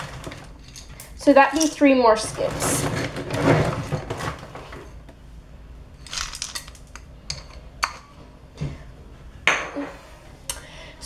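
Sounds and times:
dry kibble rattling: 6.1 - 7.0.

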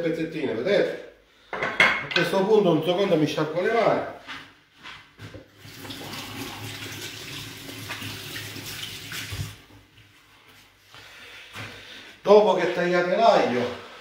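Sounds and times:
tap water running: 5.5 - 9.9.

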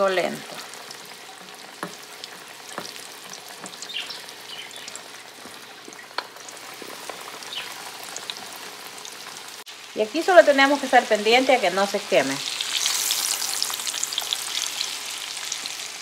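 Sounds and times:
chicken frying in hot oil: 0.0 - 16.0
oil popping: 0.3 - 9.4.

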